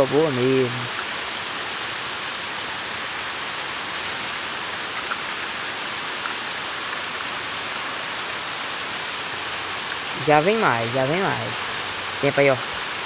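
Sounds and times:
raindrops ticking: 0.0 - 6.5, 9.4 - 13.0
heavy rain hissing: 0.0 - 13.0.

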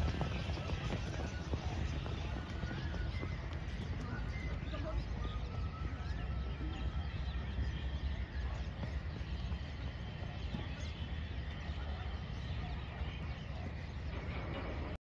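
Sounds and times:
birds chirping faintly: 0.0 - 15.0.

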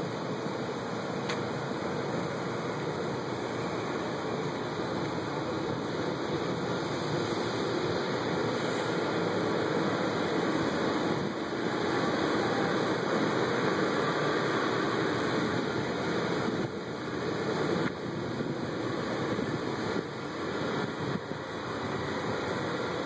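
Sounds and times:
rushing city background noise: 0.0 - 23.0.

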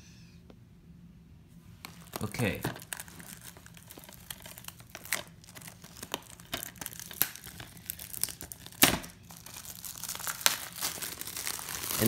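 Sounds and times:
plastic case clicks and rustles: 1.8 - 6.9.

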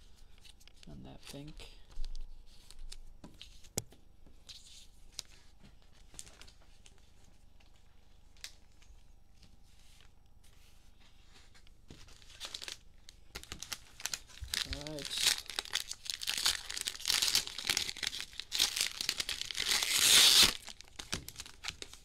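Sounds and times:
cards rustling: 11.4 - 22.0.

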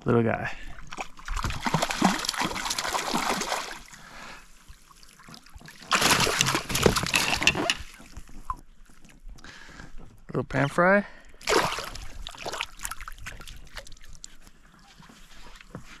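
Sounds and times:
fish splashing in water: 0.8 - 7.2, 11.4 - 14.3.

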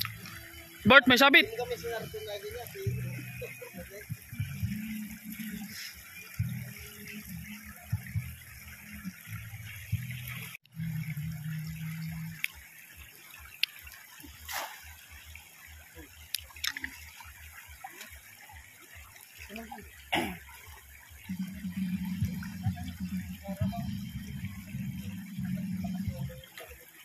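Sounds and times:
low steady hum: 0.0 - 12.7, 20.2 - 26.8
river water rushing: 0.0 - 27.0
water splashes: 0.0 - 27.0.

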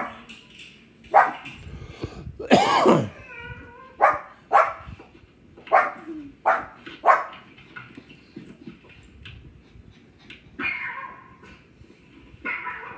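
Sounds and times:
dog barking: 0.0 - 0.2, 1.1 - 1.5, 4.0 - 4.9, 5.7 - 7.4.

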